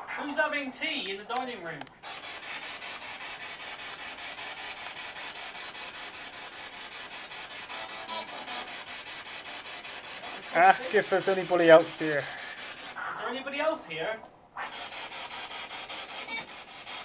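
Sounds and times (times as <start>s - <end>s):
pulsing radio static: 10.2s - 13.9s.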